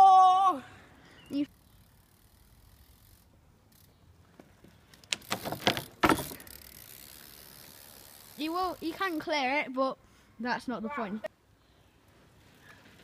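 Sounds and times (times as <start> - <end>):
bike landing thud: 5.1 - 6.7
bike wheels rattling over ramps: 5.1 - 9.3.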